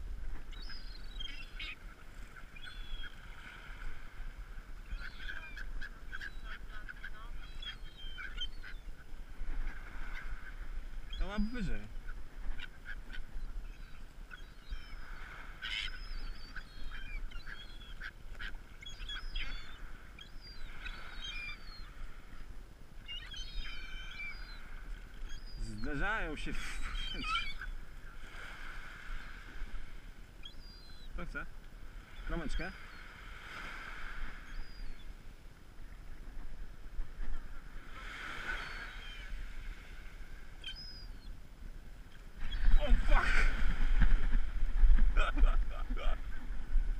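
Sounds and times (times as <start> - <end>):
small waves breaking on beach: 0.0 - 46.9
gulls squawking and crying: 0.3 - 4.0, 4.8 - 29.6, 30.4 - 35.1, 37.2 - 39.9, 40.6 - 41.3, 42.4 - 44.6
wind rumble on microphone: 41.8 - 46.9.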